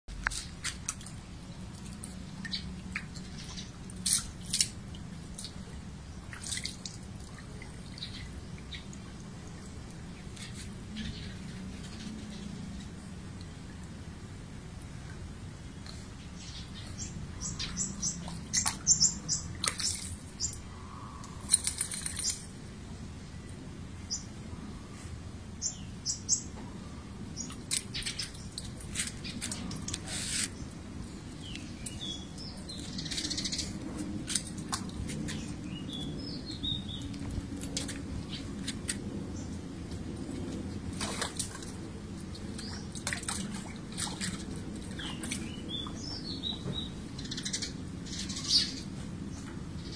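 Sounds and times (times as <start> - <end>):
birds chirping: 16.0 - 22.5, 25.6 - 49.9
dog splashing in water: 18.0 - 20.5, 40.3 - 46.0.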